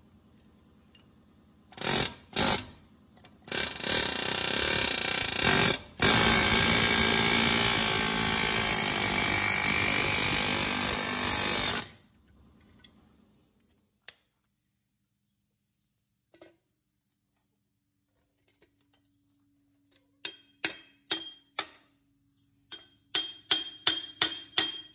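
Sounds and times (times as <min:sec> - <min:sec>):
pneumatic wrench running: 0:01.7 - 0:02.7, 0:03.5 - 0:11.9.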